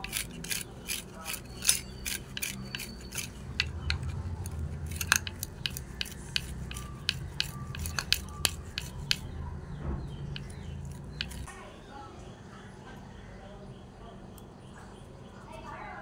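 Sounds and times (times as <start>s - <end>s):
beetroot grating on metal grater: 0.0s - 9.4s, 10.3s - 11.5s.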